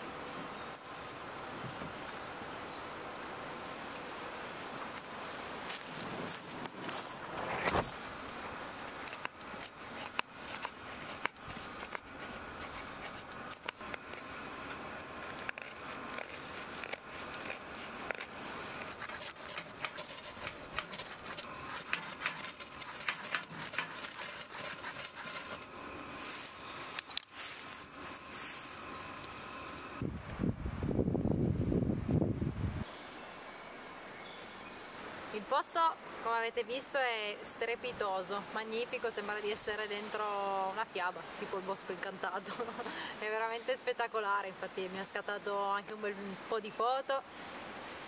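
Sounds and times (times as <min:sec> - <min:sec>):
knife shaving wood: 0:06.4 - 0:28.6.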